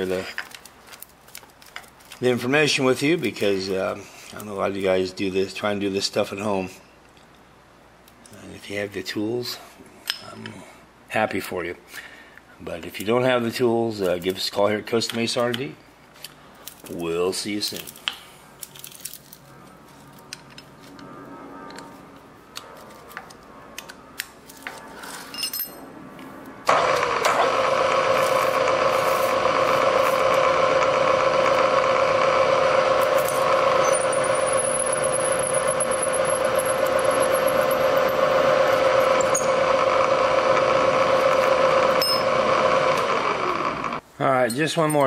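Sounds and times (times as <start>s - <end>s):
milling machine spindle whine: 26.7s - 44.0s.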